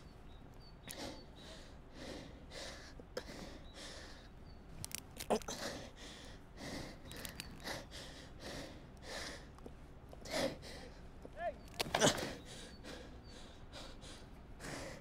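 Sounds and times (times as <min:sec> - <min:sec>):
person breathing hard and sniffing: 0:00.9 - 0:04.3, 0:05.4 - 0:09.6, 0:10.2 - 0:11.1, 0:12.2 - 0:15.0
sharp clicks: 0:04.8 - 0:05.6, 0:07.1 - 0:07.7, 0:11.6 - 0:12.2.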